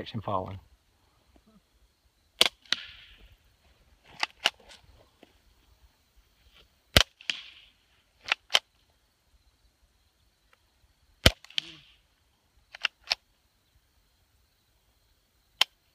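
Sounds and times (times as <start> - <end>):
suppressed gunshots: 2.4 - 3.4, 6.9 - 8.7, 11.2 - 11.9.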